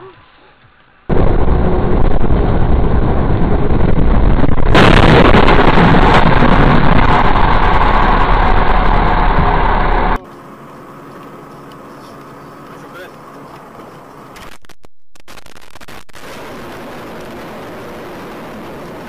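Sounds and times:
loud vehicle noise: 0:01.1 - 0:14.4.

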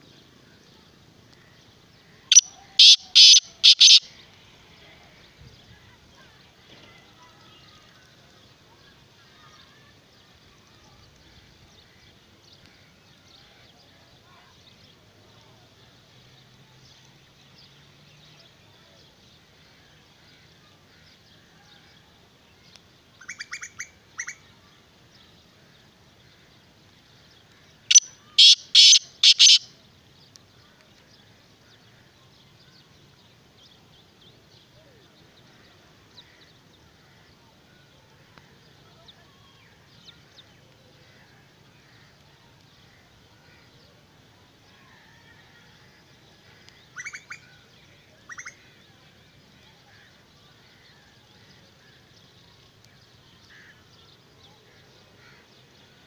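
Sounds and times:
francolin calling: 0:02.3 - 0:04.2, 0:27.9 - 0:29.7, 0:46.9 - 0:47.5.

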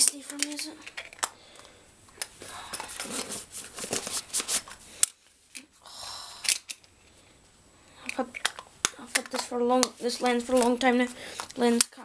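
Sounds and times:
nylon pouch rustling and scraping: 0:02.8 - 0:04.9
sharp plastic clicks: 0:08.0 - 0:10.8.

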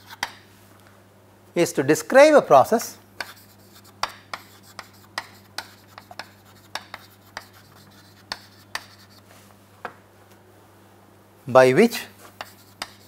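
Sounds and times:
chalk scratching: 0:00.0 - 0:00.4, 0:03.2 - 0:09.4, 0:12.2 - 0:13.0
chalk tapping on chalkboard: 0:00.0 - 0:00.4, 0:03.2 - 0:09.3, 0:12.2 - 0:13.0.

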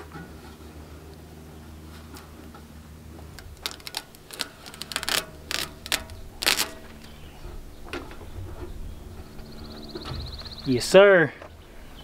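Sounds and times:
steady low hum: 0:00.0 - 0:12.0
plastic sheet crinkling: 0:03.4 - 0:07.1.

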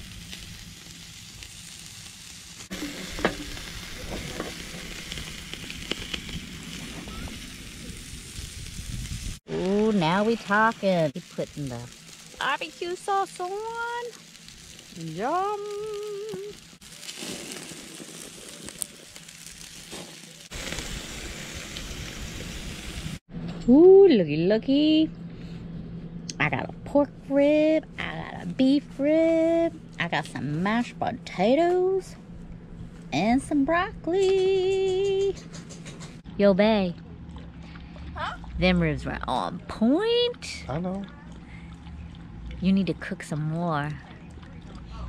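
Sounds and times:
ribs sizzling on a grill: 0:00.0 - 0:23.2.

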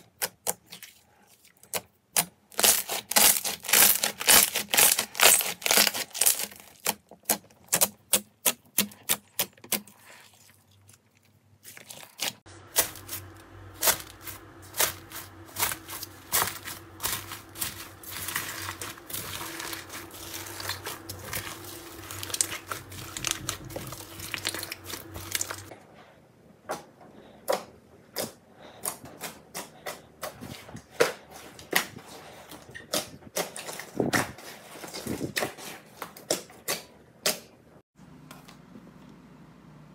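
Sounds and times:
low steady hum: 0:10.0 - 0:34.4.

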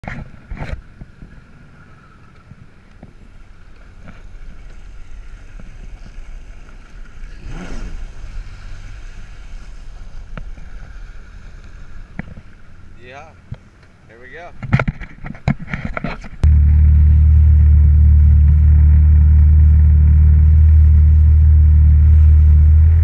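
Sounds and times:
jet ski engine drone: 0:00.4 - 0:14.1, 0:16.4 - 0:23.0.

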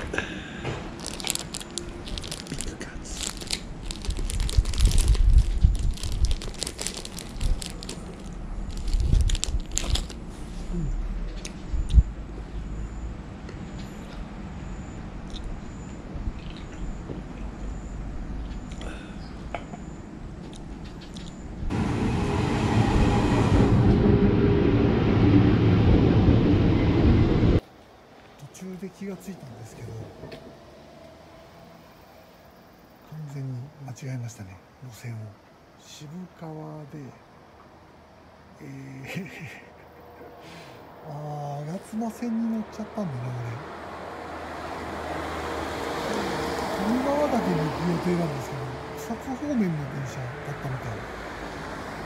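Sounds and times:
plastic wrapper crinkling: 0:00.9 - 0:10.2
low rumble: 0:21.6 - 0:27.6
electric train passing: 0:21.7 - 0:27.6.

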